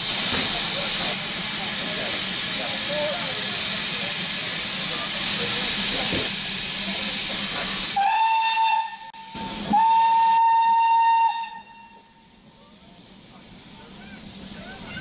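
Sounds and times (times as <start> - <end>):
steam locomotive hissing: 0.0 - 15.0
steam whistle blasts: 8.0 - 12.2.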